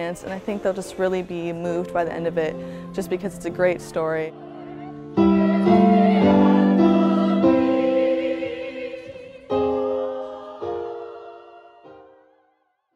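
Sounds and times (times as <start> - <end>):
piano: 0.0 - 12.9
choir singing held chords: 2.8 - 12.9.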